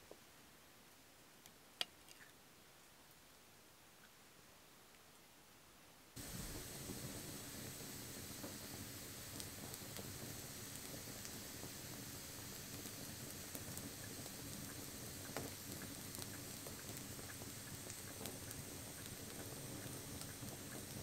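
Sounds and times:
campfire crackling: 6.2 - 21.0
sharp pops from fire: 6.2 - 21.0.

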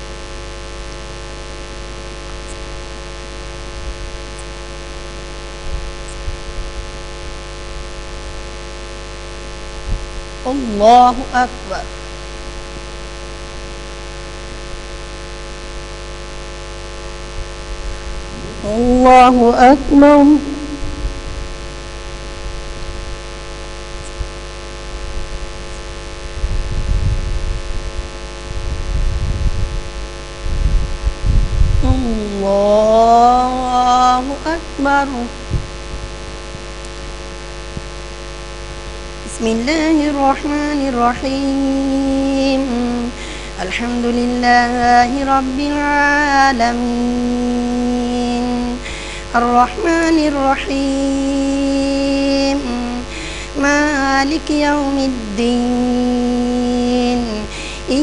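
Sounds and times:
electrical mains hum: 0.0 - 58.0
faint low bumps: 17.8 - 21.7
low rumbles: 17.8 - 22.1.

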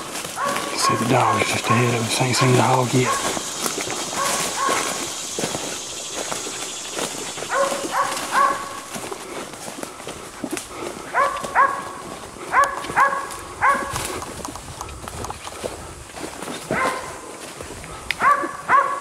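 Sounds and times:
dog barking: 0.0 - 5.1, 7.5 - 8.9, 11.1 - 14.0, 16.7 - 17.2, 18.2 - 19.0
footsteps through brush: 0.0 - 18.7.

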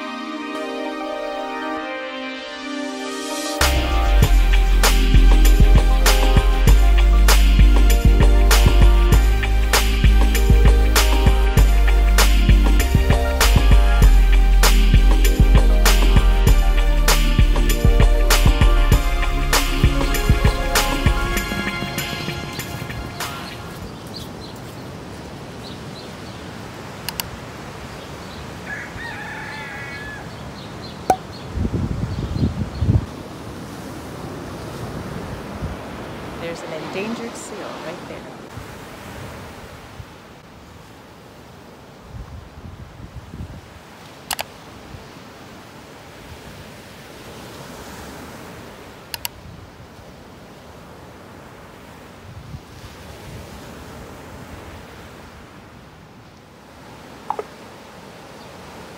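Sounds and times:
ocean surf: 0.0 - 31.4, 33.0 - 58.9
rooster crowing: 28.6 - 30.4
waves washing up beach: 33.1 - 58.9.

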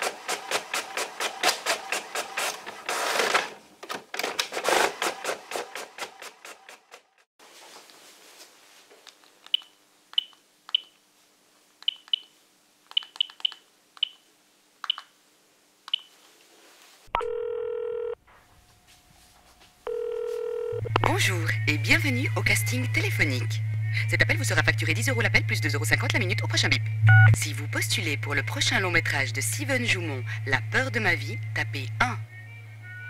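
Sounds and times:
phone keypad beeps: 9.5 - 10.9, 27.1 - 27.4
phone ringing tone: 17.2 - 18.2, 19.8 - 21.0.

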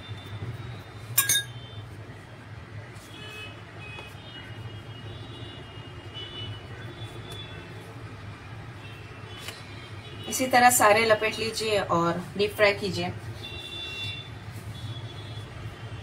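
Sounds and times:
kitchen utensil clink: 1.2 - 1.6.

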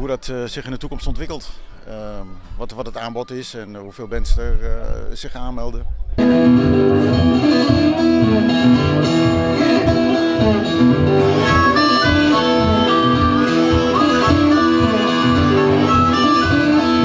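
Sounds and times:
acoustic guitar: 6.2 - 17.0
harmonica holding long notes: 6.2 - 17.0
lap slide guitar: 6.2 - 17.0.

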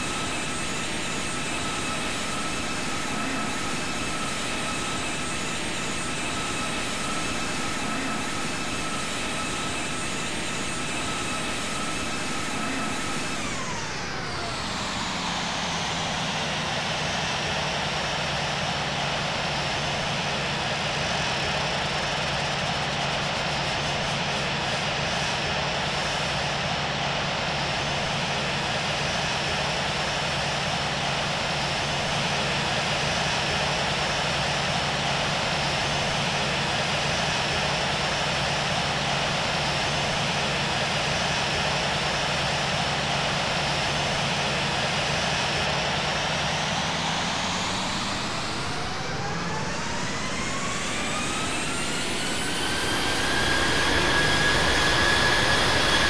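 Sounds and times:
jet engine and air noise in cabin: 0.0 - 56.0
jet engine whine spooling up: 0.0 - 56.0.

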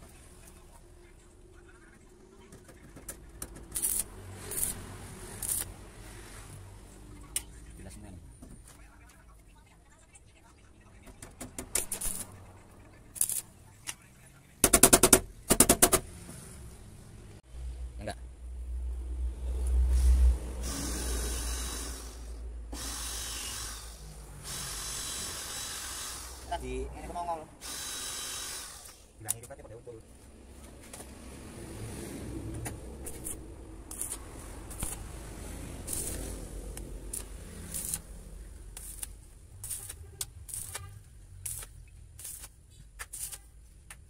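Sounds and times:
welding arc crackling: 3.5 - 6.4, 11.8 - 12.4, 13.1 - 13.5, 32.9 - 43.5
cordless drill on steel panel: 20.6 - 22.2, 22.8 - 26.5, 27.6 - 29.1.

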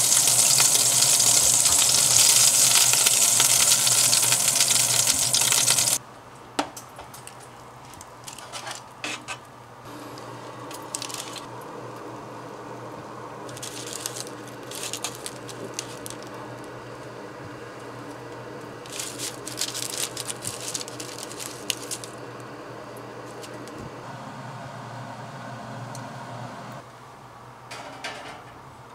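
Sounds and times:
steady low hum: 9.8 - 26.8
parchment paper rustling: 10.7 - 11.5, 13.5 - 16.5, 18.8 - 22.2, 23.2 - 23.8.

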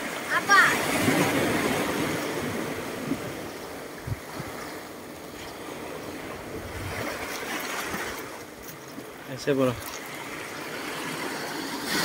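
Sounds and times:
waves washing over pebbles: 0.0 - 12.0.

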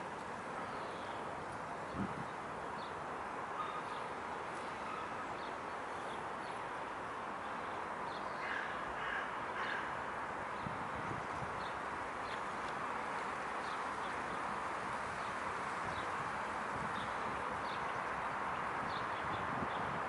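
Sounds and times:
steady background noise: 0.0 - 20.0
crows cawing: 8.4 - 10.0.

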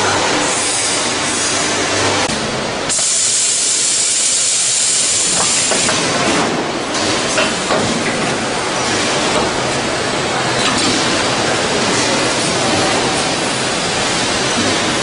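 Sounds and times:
compressed air hiss: 2.9 - 6.0.

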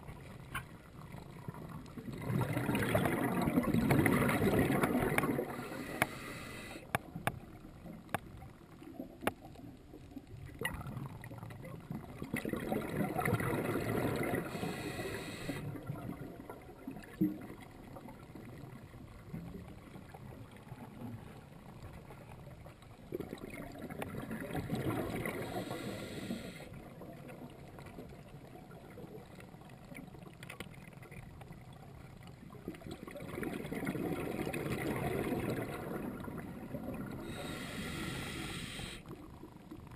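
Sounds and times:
exhaled bubbles rumbling underwater: 0.0 - 39.9
regulator inhale hiss: 5.4 - 6.9, 14.4 - 15.7, 25.3 - 26.8, 37.2 - 39.2.

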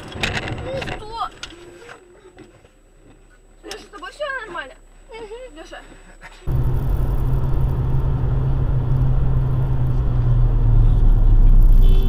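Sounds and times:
car engine and road noise: 6.5 - 12.0.

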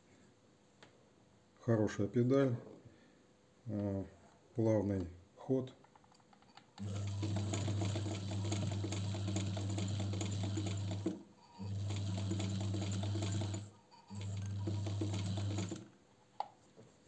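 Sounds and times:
sewing machine motor hum: 6.8 - 15.9.

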